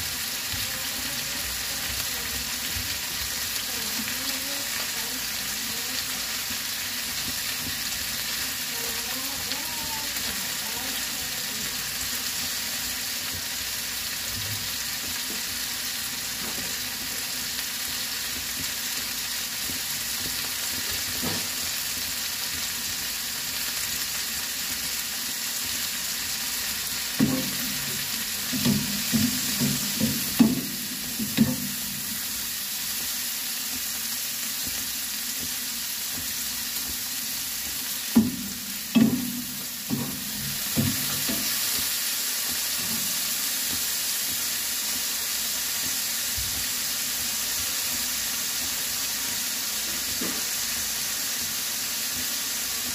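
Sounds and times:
vegetables sizzling in oil: 0.0 - 52.9
spatula knocking and scraping pan: 13.3 - 45.1, 49.8 - 52.9.

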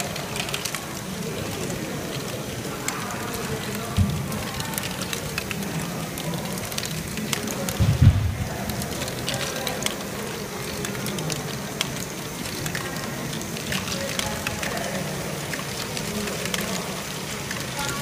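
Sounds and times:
low thump: 7.8 - 8.4.

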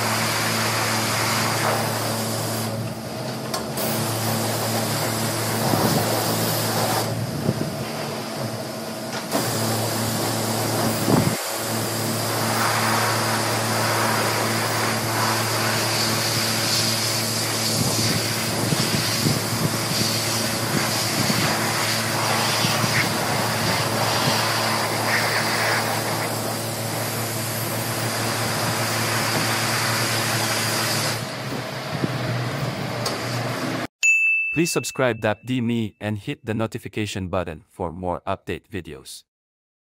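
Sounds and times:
pressure washer spraying water: 0.0 - 2.8, 3.8 - 7.2, 9.3 - 31.3.

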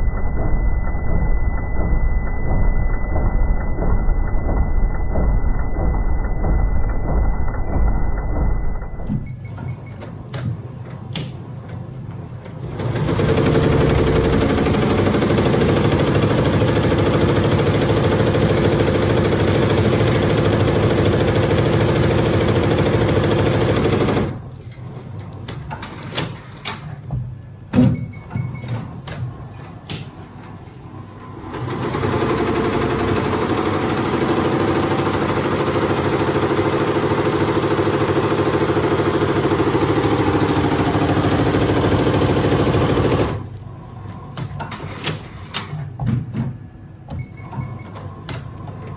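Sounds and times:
scattered clicks and knocks: 0.0 - 30.6.

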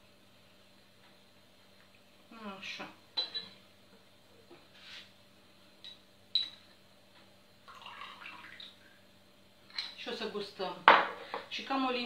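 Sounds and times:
metal spoon clinking on glassware: 3.2 - 3.6, 5.8 - 6.6.

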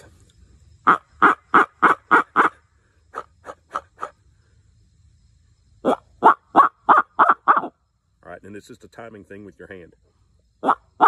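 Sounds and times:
owl call hoots: 5.8 - 7.8, 10.6 - 11.0.

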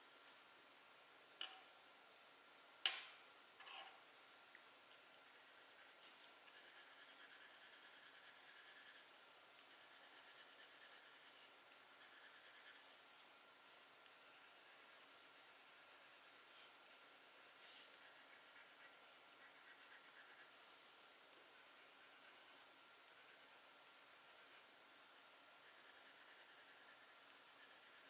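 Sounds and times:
drawing tool scratching paper: 5.2 - 9.1, 9.7 - 12.9, 14.1 - 20.6, 25.6 - 28.0.

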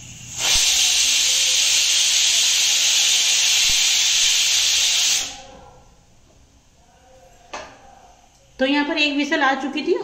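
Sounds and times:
pressure cooker whistle hissing: 0.0 - 5.6.

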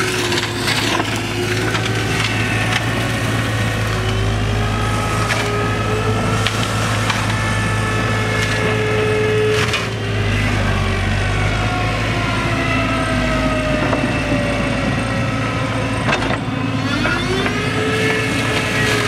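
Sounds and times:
cracks of material striking mulcher: 0.0 - 10.7
flail mulcher whining: 0.0 - 19.0.

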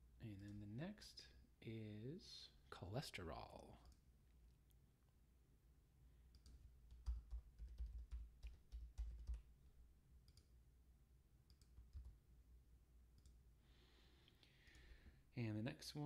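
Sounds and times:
keyboard typing: 6.3 - 9.6, 10.2 - 10.5, 11.5 - 12.2.

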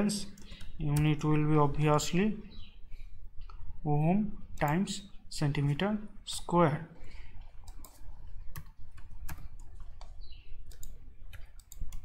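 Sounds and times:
computer keyboard typing: 7.4 - 12.0.

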